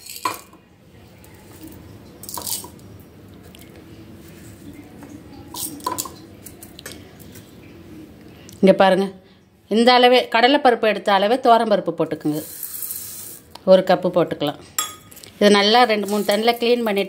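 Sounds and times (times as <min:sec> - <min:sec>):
metal vessels clinking: 0:00.0 - 0:00.6, 0:05.4 - 0:06.3, 0:14.7 - 0:17.0.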